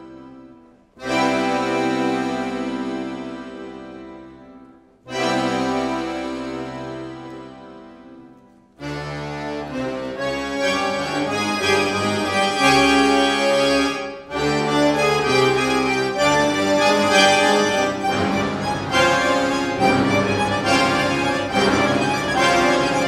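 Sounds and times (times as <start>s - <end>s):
accordion ensemble playing chords: 0.0s - 23.0s.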